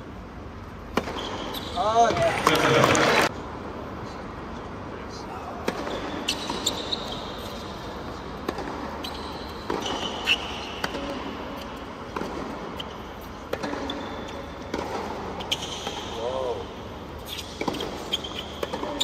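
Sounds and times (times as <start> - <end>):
racket striking tennis ball: 0.9 - 1.6, 5.6 - 7.1, 8.0 - 16.2, 17.2 - 19.0
shoe squeaks: 1.0 - 2.0, 5.8 - 8.0, 8.9 - 11.8, 12.6 - 14.7, 15.3 - 16.6, 17.2 - 19.0
ball bouncing: 8.4 - 11.2, 12.1 - 16.1, 17.4 - 19.0.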